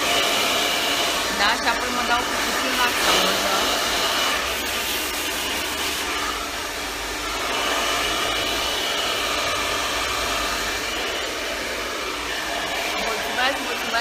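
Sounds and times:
hair dryer blowing: 0:00.0 - 0:14.0.

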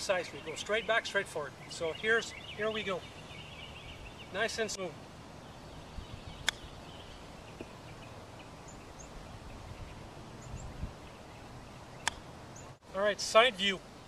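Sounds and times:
small birds chirping: 0:00.0 - 0:14.0
golf club striking ball: 0:06.4 - 0:06.8, 0:12.0 - 0:12.3.

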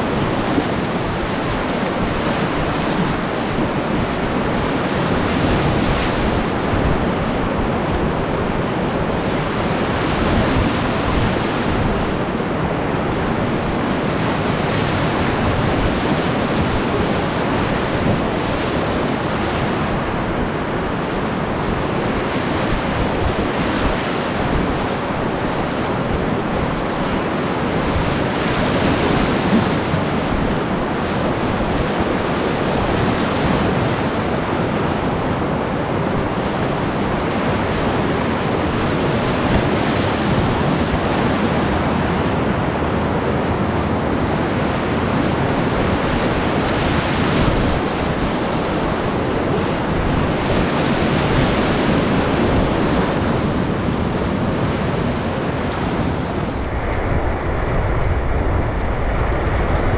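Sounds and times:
whitewater rapids rushing: 0:00.0 - 0:57.8
wind buffeting microphone: 0:00.0 - 0:59.9.

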